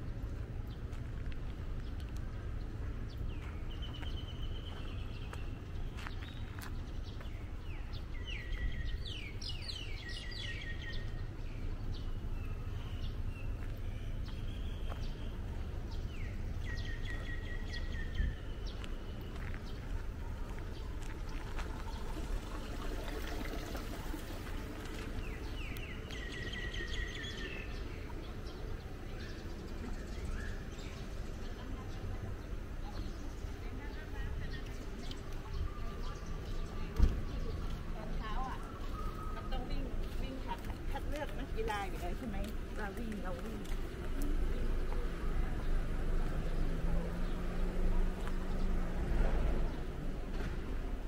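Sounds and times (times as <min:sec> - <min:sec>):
bird chirping: 0:03.1 - 0:19.9.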